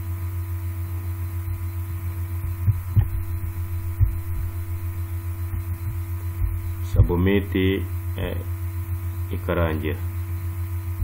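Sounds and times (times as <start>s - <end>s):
pulsing electrical hum: 0.0s - 11.0s.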